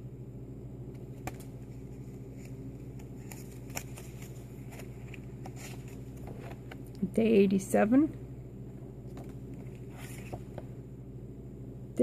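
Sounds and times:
low hum: 0:00.0 - 0:12.0
index cards shuffled: 0:00.9 - 0:06.9.

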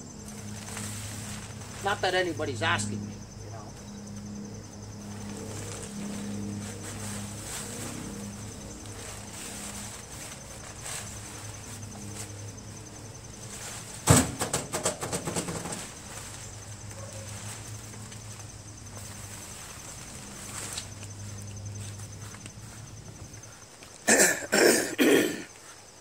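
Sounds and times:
rattling clatter: 0:14.0 - 0:16.0.

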